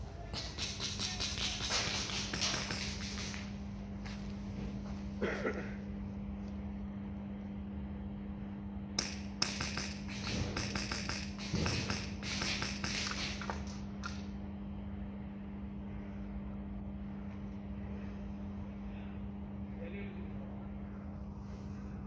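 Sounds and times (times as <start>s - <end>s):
airsoft guns firing: 0.3s - 3.5s, 9.0s - 13.8s.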